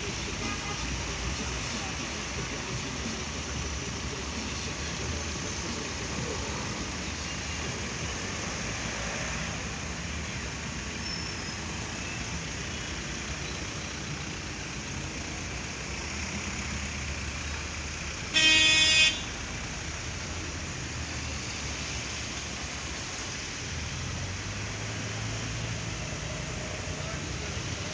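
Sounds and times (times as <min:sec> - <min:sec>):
street traffic noise: 0:00.0 - 0:27.9
vehicle horn blast: 0:18.3 - 0:19.3.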